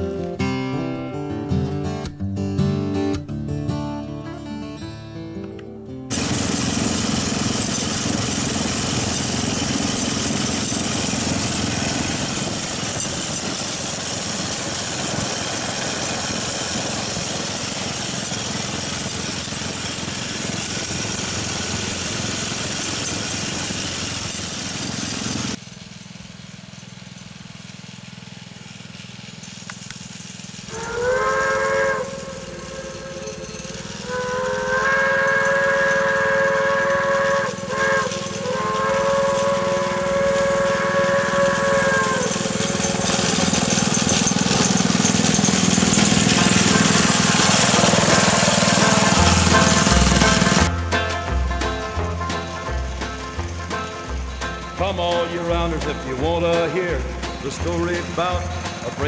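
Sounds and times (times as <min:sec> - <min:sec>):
rail bike rushing on track: 0:06.1 - 0:59.0
horn chord: 0:30.7 - 0:43.1, 0:46.3 - 0:59.0.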